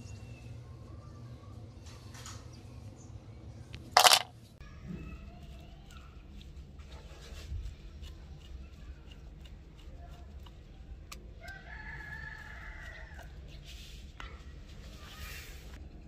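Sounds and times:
rooster crowing: 0:11.4 - 0:13.3.

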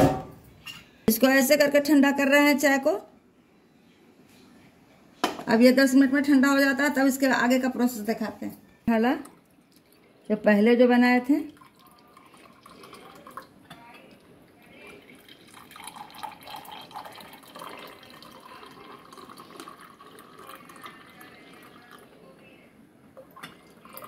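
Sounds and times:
tea pouring into glass mug: 0:11.4 - 0:22.3, 0:23.2 - 0:24.0.

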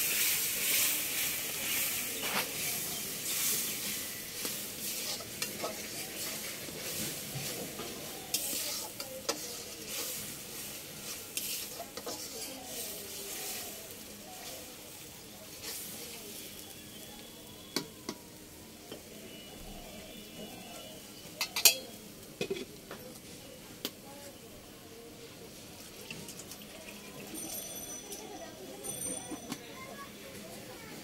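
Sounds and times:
ladle stirring and scraping: 0:00.0 - 0:14.8, 0:15.4 - 0:16.6
spice paste sizzling: 0:00.0 - 0:28.9.

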